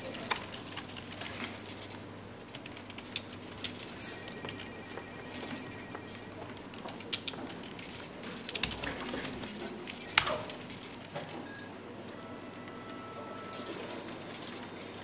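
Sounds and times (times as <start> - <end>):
computer keyboard clicks: 0.0 - 3.8, 6.4 - 9.0.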